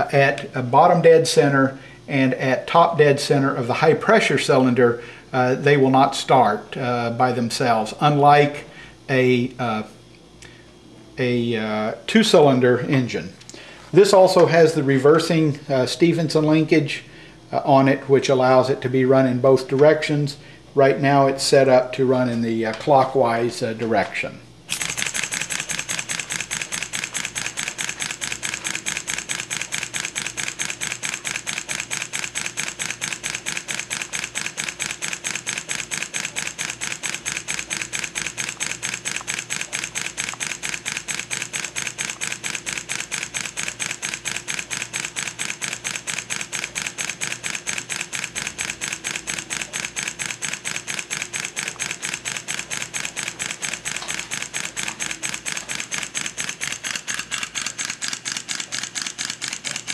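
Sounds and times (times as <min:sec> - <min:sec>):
steam engine running: 0:24.7 - 0:59.9.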